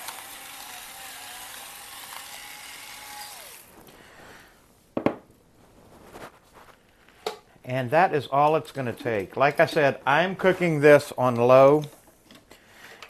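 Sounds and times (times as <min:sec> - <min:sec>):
electric grinders whirring: 0:00.0 - 0:03.8.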